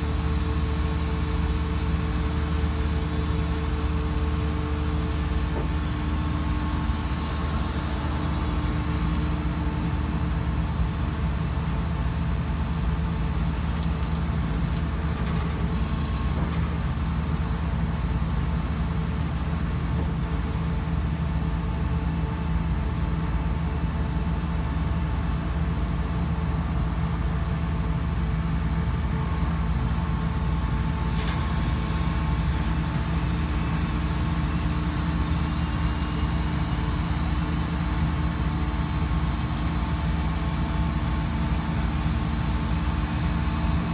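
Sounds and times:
machine engine running steadily: 0.0 - 43.9.

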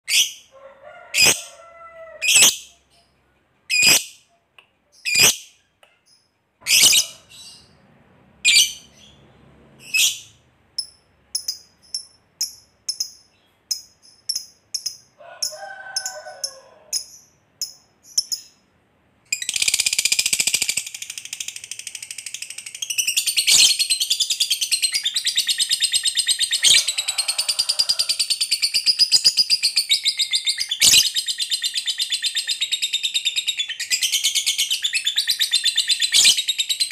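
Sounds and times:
lovebird chirping and trilling: 0.1 - 0.5, 1.2 - 1.4, 2.2 - 4.3, 4.9 - 7.8, 8.4 - 9.2, 9.8 - 18.6, 19.3 - 36.9.

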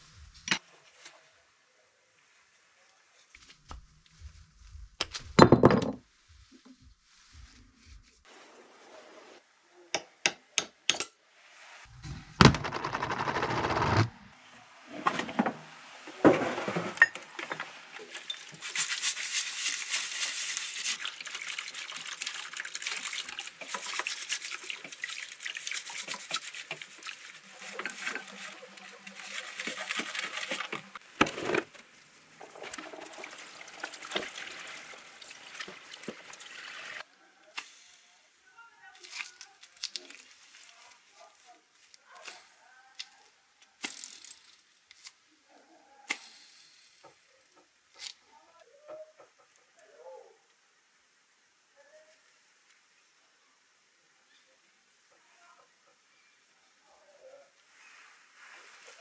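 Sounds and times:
fluid splashing: 17.9 - 31.0, 32.4 - 37.0
brush scrubbing: 18.0 - 31.0.

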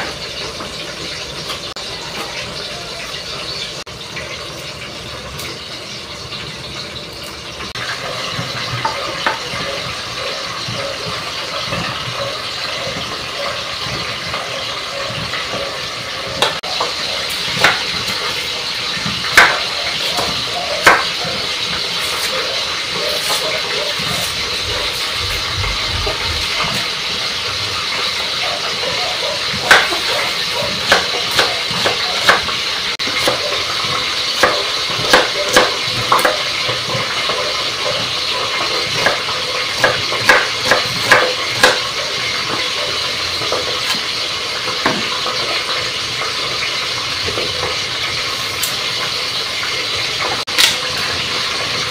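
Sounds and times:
knife tapping on wooden board: 20.2 - 21.1.

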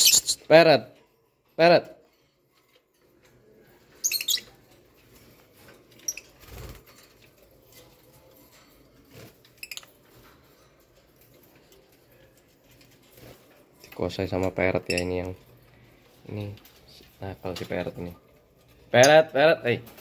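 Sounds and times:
birds chirping squeakily: 0.0 - 0.5, 3.8 - 7.2, 9.2 - 10.1, 13.8 - 16.0, 18.7 - 19.4.

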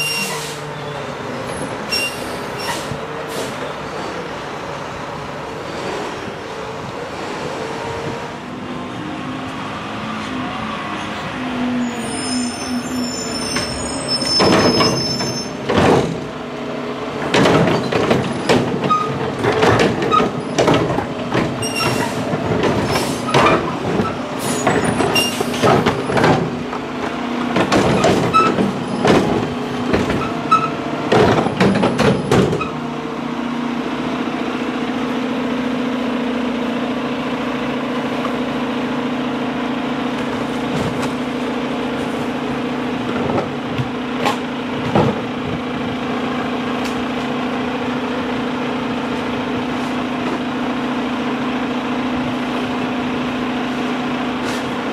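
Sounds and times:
truck brakes squealing: 0.0 - 4.3, 10.9 - 15.7, 21.6 - 25.8, 30.2 - 30.8.

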